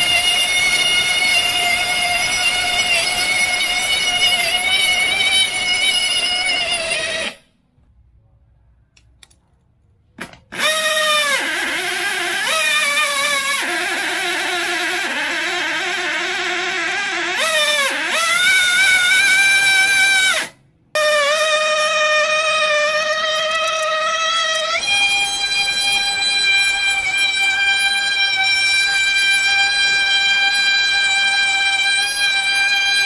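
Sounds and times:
model engine high whine: 0.0 - 7.5, 10.5 - 20.6, 21.2 - 33.0.

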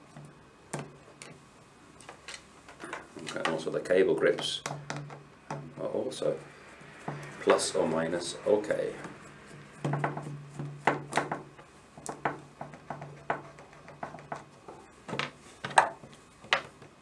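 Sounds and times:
tools knocking on wooden table: 9.8 - 16.7.

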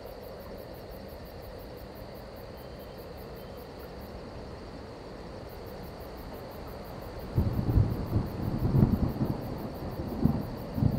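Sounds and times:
rain hiss: 0.0 - 10.9
thunder rumbling: 7.4 - 10.9.

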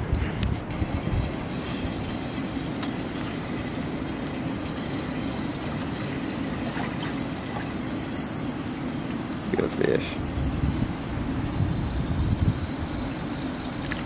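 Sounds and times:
wind buffeting microphone: 0.0 - 2.6, 10.1 - 14.0
steady hum: 0.0 - 14.0.

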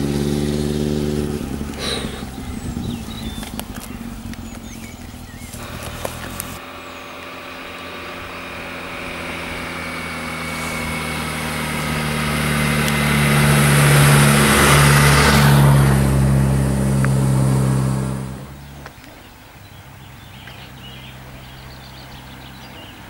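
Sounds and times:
tyre and wind noise: 0.0 - 6.6
motorcycle and car passing: 0.0 - 23.0.

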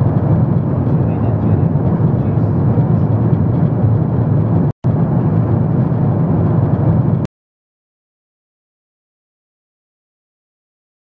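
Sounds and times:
airliner cabin engine rumble: 0.0 - 7.3.

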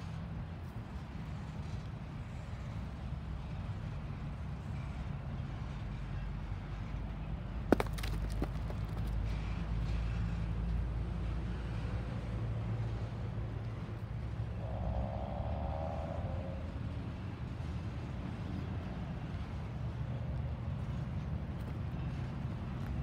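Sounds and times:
freight train wheels rumbling: 0.0 - 23.0
faint squeal: 14.4 - 17.3.

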